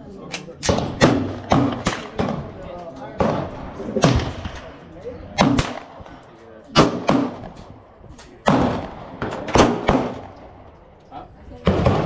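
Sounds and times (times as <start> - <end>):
handgun shots with echo: 0.3 - 2.4, 5.4 - 6.0, 6.7 - 7.6, 8.4 - 10.5.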